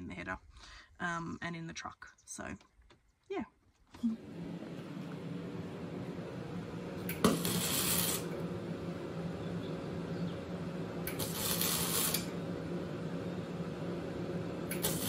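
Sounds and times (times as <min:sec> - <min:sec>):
steady low hum: 0:04.0 - 0:15.0
arc welding crackling hiss: 0:07.1 - 0:08.4, 0:11.0 - 0:12.4, 0:14.7 - 0:15.0.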